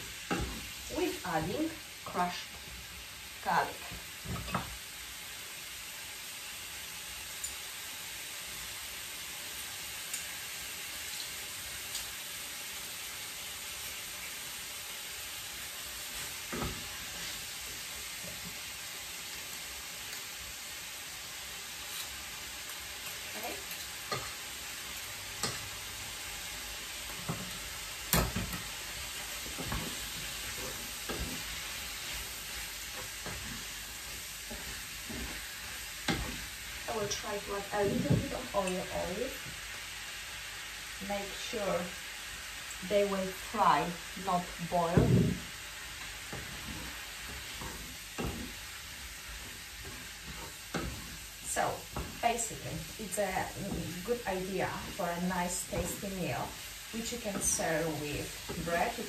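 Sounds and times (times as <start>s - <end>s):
food sizzling in a frying pan: 0.0s - 59.0s.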